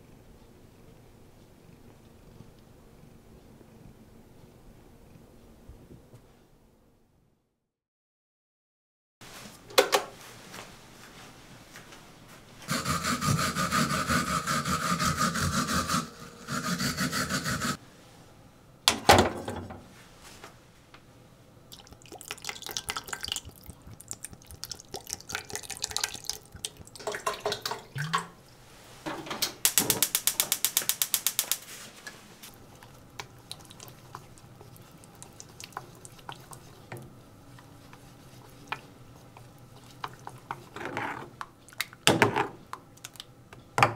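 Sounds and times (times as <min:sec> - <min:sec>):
quick rhythmic scraping: 0:12.7 - 0:17.8
running water: 0:21.7 - 0:28.5.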